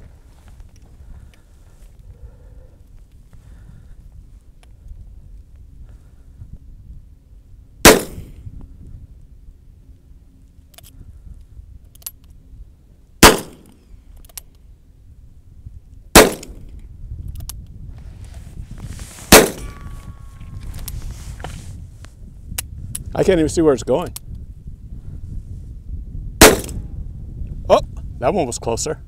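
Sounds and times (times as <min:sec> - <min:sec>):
handgun shots: 0:07.9 - 0:08.3, 0:13.2 - 0:13.7, 0:16.2 - 0:16.6, 0:19.3 - 0:19.8, 0:26.4 - 0:26.8.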